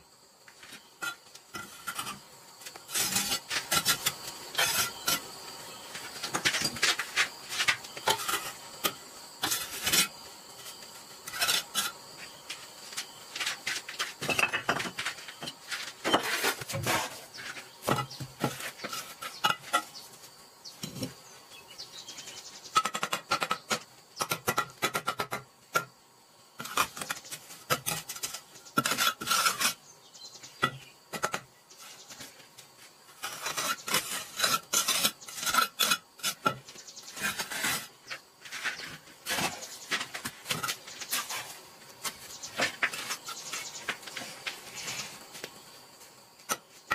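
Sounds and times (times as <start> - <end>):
trowel scraping wet mortar: 1.0 - 5.3, 6.0 - 10.2, 11.2 - 12.0, 13.4 - 20.0, 26.6 - 29.8, 33.1 - 45.2.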